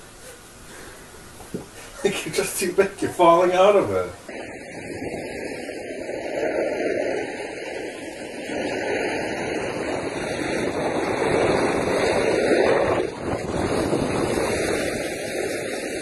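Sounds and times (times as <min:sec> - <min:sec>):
skis sliding on snow: 0:02.2 - 0:16.0
wind on microphone: 0:03.9 - 0:16.0.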